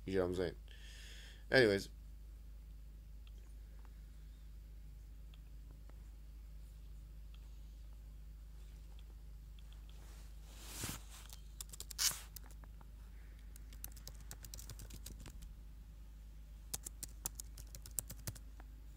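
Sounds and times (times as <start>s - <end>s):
short rustling: 9.9s - 12.4s
computer keyboard and mouse clicking: 11.3s - 12.7s, 13.5s - 15.5s, 16.7s - 18.4s.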